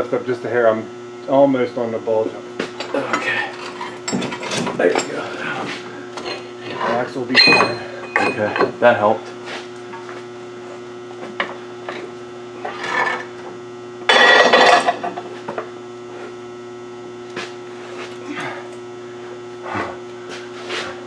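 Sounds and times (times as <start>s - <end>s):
electrical hum of lights: 0.0s - 21.0s
metal parts knocking and scraping: 6.9s - 8.7s.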